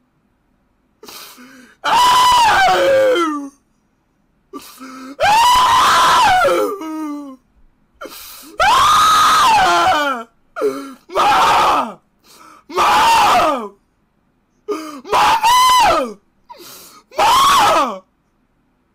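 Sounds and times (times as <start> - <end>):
gasping breaths: 1.0 - 1.8, 4.6 - 5.2, 12.2 - 12.7
young man screaming: 1.8 - 3.6, 5.2 - 7.3, 8.6 - 10.3, 11.0 - 12.0, 12.7 - 13.8, 15.0 - 16.2, 17.1 - 18.0.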